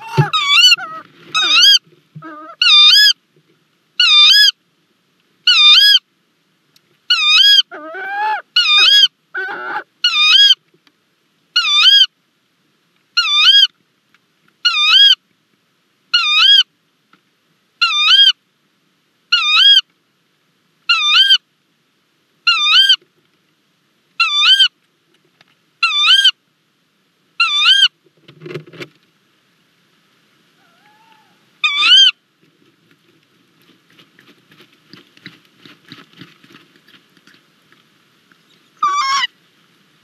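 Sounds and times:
lower rough owl calls: 0.0 - 3.2, 4.0 - 4.6, 5.4 - 6.0, 7.1 - 10.6, 11.6 - 12.1, 13.2 - 13.7, 14.6 - 15.2, 16.1 - 16.7, 17.8 - 18.4, 19.3 - 19.9, 20.9 - 21.5, 22.4 - 23.0, 24.2 - 24.8, 25.8 - 26.4, 27.4 - 27.9, 30.6 - 32.2, 38.6 - 39.4
owl squeaky call: 0.0 - 3.2, 4.0 - 4.6, 5.5 - 6.0, 7.1 - 10.6, 11.6 - 12.1, 13.2 - 13.7, 14.6 - 15.2, 16.1 - 16.7, 17.8 - 18.4, 19.3 - 19.8, 20.9 - 21.4, 22.5 - 23.0, 24.2 - 24.7, 25.8 - 26.4, 27.4 - 27.9, 30.6 - 32.2, 38.5 - 39.3.

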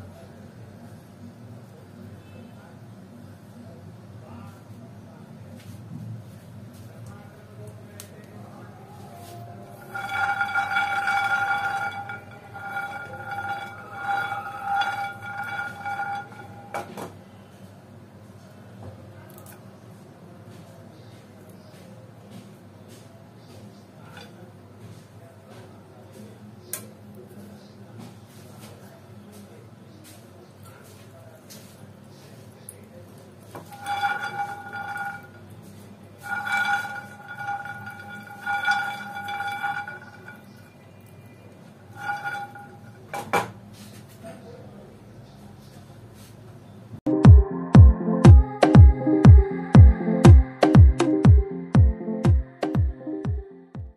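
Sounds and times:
pan ringing: 9.7 - 17.0, 33.7 - 35.4, 36.2 - 40.8, 42.0 - 43.0
peanuts rattling in a frying pan: 33.6 - 35.5, 36.2 - 40.7
peanuts rattling in frying pan: 33.7 - 35.4.

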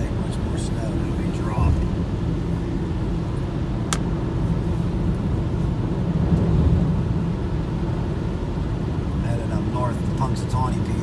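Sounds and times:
vehicle engine rumble: 0.0 - 11.0.

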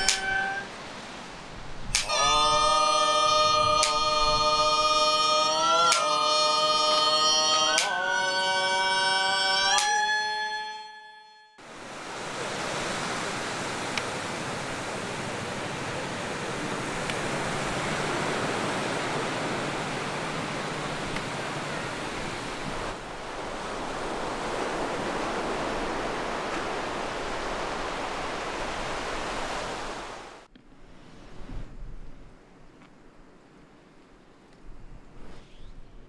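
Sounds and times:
surf breaking on beach: 11.6 - 31.6.

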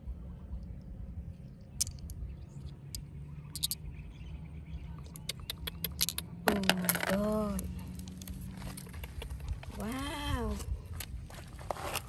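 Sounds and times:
low steady rumble: 0.0 - 12.0
small stones clicking together: 1.8 - 2.2, 2.9 - 3.8, 5.1 - 9.4.

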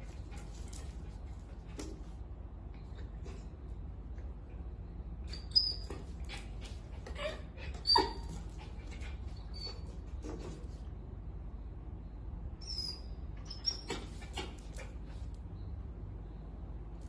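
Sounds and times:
paws scuffing on tile floor: 0.0 - 2.2
puppy yipping: 5.3 - 10.0, 12.6 - 14.6.

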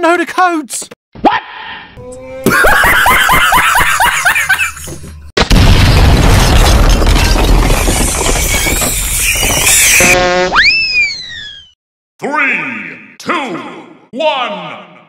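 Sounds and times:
cartoon explosion with crumbling rumble: 5.4 - 10.2.

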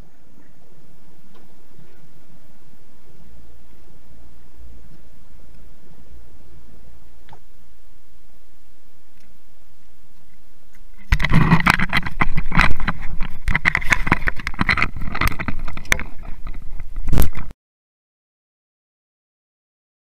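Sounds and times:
faint steady hiss: 0.0 - 13.5
fingers rubbing and knocking on camera: 11.0 - 17.5.

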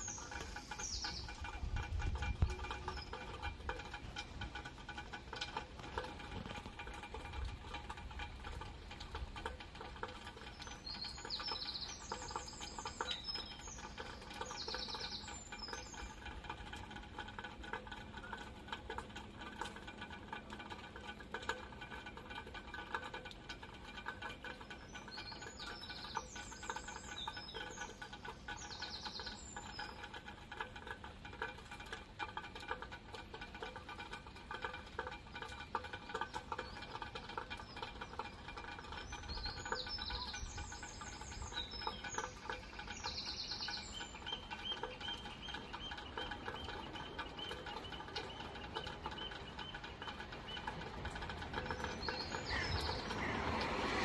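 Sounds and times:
rain pattering and dripping: 0.0 - 54.0
bird twittering: 51.7 - 53.3.

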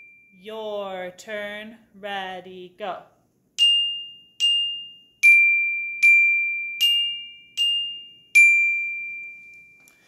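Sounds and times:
glockenspiel struck with mallets: 0.0 - 0.5, 3.6 - 10.0.

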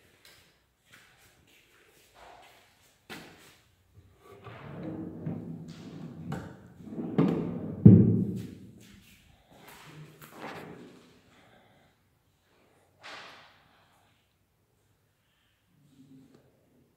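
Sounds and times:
drawer sliding: 4.2 - 7.9.

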